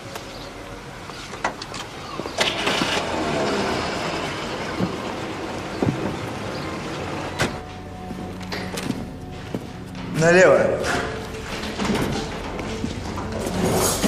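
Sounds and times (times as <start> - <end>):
vehicle engine starting and running: 0.0 - 7.8.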